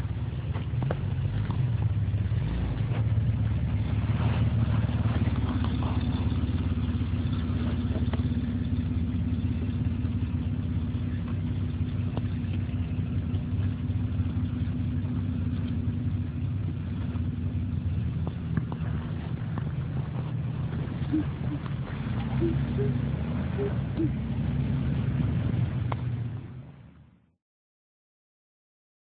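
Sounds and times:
engine running at low revs: 0.0 - 27.4
tyres crunching on rock and gravel: 0.4 - 9.8.

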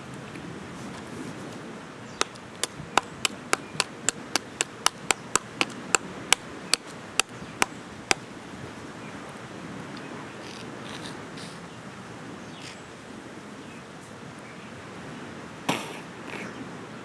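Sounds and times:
knife knocking on coconut: 2.6 - 5.8.

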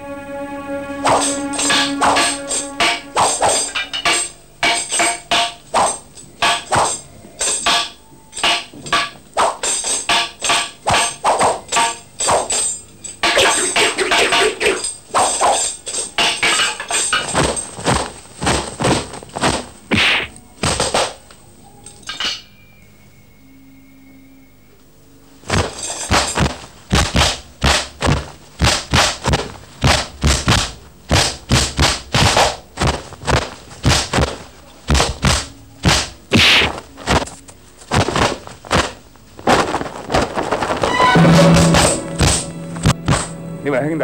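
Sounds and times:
fight blows thuds and clashes: 25.5 - 37.3.

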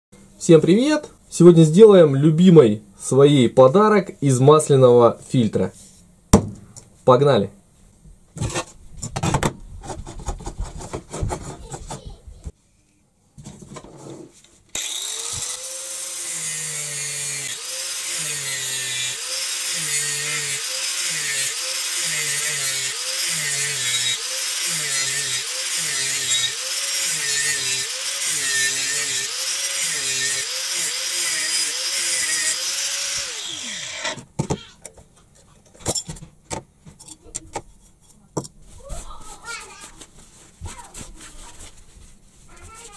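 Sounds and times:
angle grinder cutting metal: 14.8 - 34.2.

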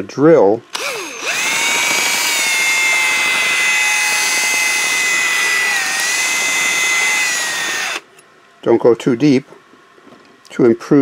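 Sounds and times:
electric drill drilling metal: 0.7 - 8.1.

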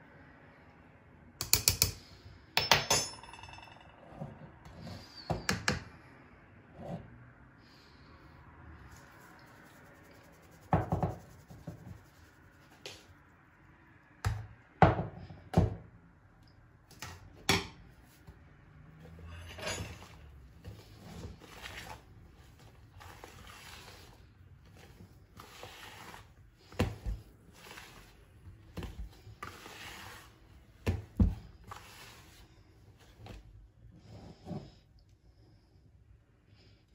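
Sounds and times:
hand mixing dough: 8.8 - 13.6, 19.9 - 35.0.

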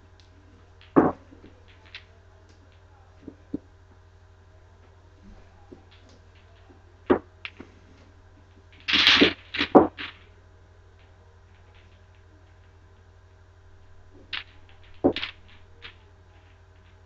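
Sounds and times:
pool balls clicking: 0.1 - 3.7, 4.8 - 10.4, 13.7 - 17.0
balls clattering together: 0.8 - 3.6, 8.5 - 10.4, 13.8 - 17.0
cue striking a ball: 0.9 - 1.2.

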